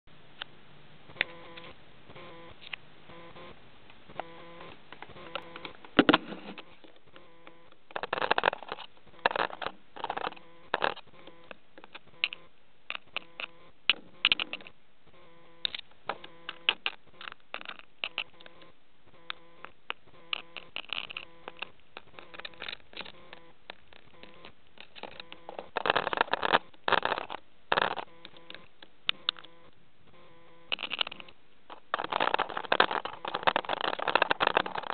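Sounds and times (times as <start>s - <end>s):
bird scratching and tapping on camera: 5.0s - 14.7s, 15.7s - 18.7s, 19.3s - 29.6s, 30.7s - 34.9s
parrot beak tapping camera: 30.7s - 34.9s.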